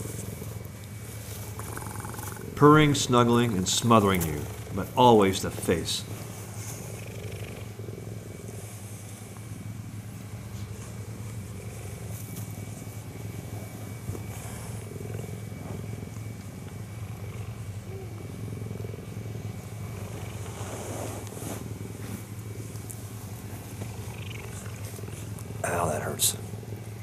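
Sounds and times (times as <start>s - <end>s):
cheetah purring: 0.0s - 27.0s
scratchy rustles: 20.3s - 25.3s.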